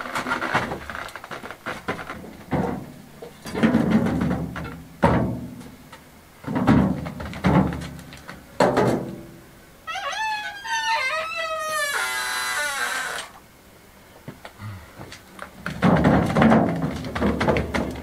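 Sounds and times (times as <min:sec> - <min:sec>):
metal wheelbarrow clunking on stone: 0:00.0 - 0:05.8, 0:06.4 - 0:09.2, 0:15.5 - 0:18.0.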